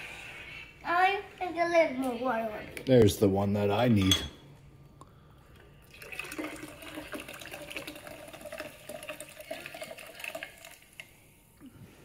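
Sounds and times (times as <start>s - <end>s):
water pouring into metal shaker: 5.8s - 11.2s.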